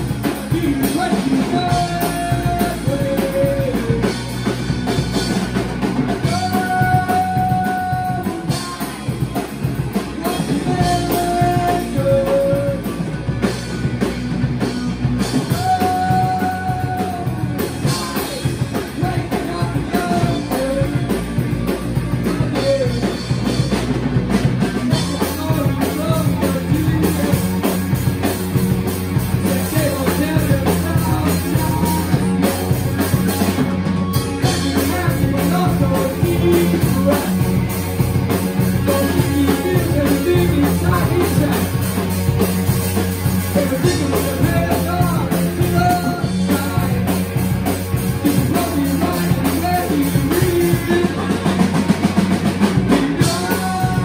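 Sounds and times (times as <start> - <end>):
bass guitar: 0.0 - 54.0
drum kit: 0.0 - 54.0
electric guitar: 0.0 - 54.0
person singing into microphone: 0.4 - 4.2, 6.2 - 9.2, 10.1 - 13.0, 15.4 - 21.4, 34.4 - 37.6, 38.8 - 41.8, 43.5 - 47.2, 48.2 - 51.8, 52.9 - 54.0.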